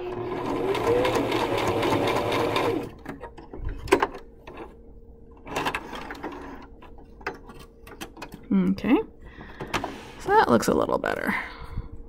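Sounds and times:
sewing machine running: 0.0s - 3.0s
sharp clicks and handling noises: 3.0s - 8.8s.

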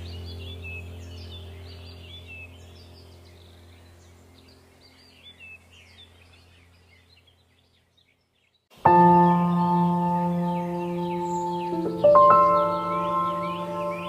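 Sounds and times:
calm drone music: 0.0s - 5.8s, 8.8s - 14.0s
birdsong chirping: 0.0s - 14.0s.

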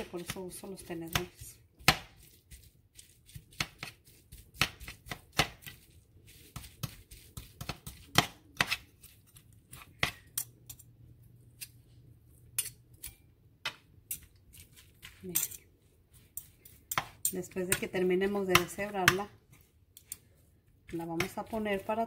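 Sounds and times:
forks scraping a bowl: 14.1s - 18.4s.

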